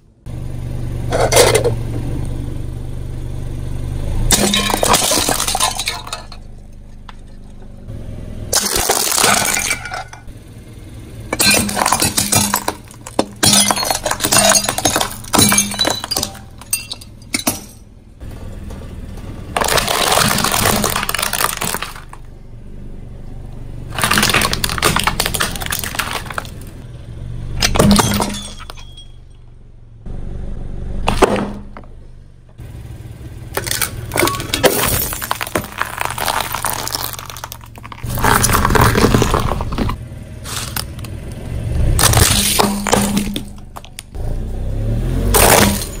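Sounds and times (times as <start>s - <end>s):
tyre crushing plastic toys: 4.3s - 6.5s, 8.5s - 10.2s, 11.4s - 17.7s, 19.5s - 22.3s, 23.9s - 26.8s, 31.1s - 31.9s, 33.5s - 41.1s, 42.0s - 44.1s, 45.3s - 46.0s.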